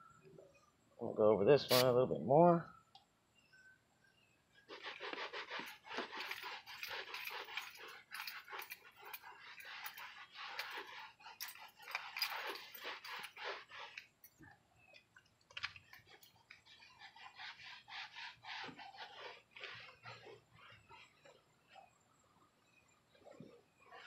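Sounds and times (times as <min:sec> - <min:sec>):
cloth rag rubbing leather: 0:01.7 - 0:02.0, 0:04.6 - 0:14.3, 0:16.0 - 0:21.9.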